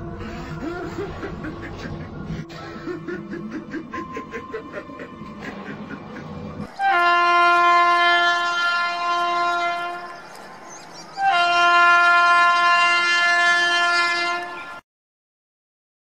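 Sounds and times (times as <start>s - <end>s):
train horn blasts: 6.7s - 10.2s, 11.2s - 14.8s.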